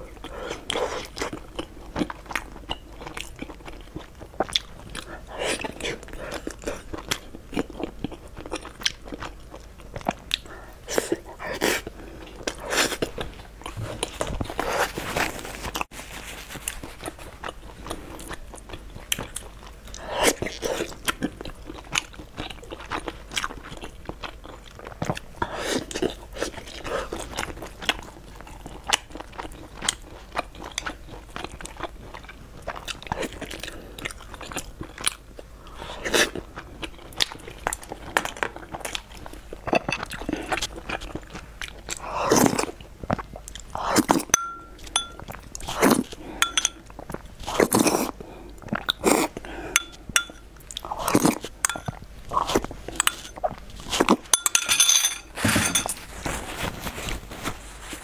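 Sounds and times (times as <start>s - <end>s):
wet chewing and lip-smacking: 0.1s - 14.7s
light clink: 44.4s - 45.2s, 46.4s - 46.8s, 49.8s - 50.4s, 54.4s - 55.9s.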